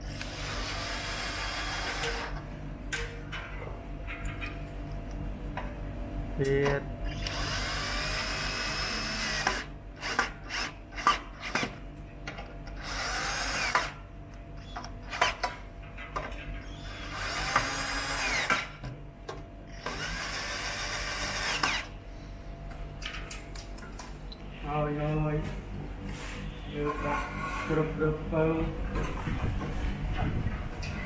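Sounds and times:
low steady hum: 0:00.0 - 0:31.0
cordless drill driving screws: 0:07.1 - 0:11.6, 0:12.8 - 0:14.0, 0:17.0 - 0:18.7, 0:19.8 - 0:21.9.

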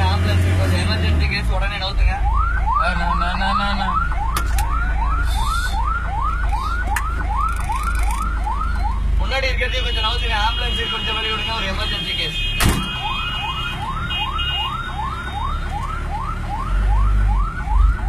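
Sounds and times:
ambulance siren yelping: 0:01.8 - 0:09.5, 0:12.8 - 0:18.0.

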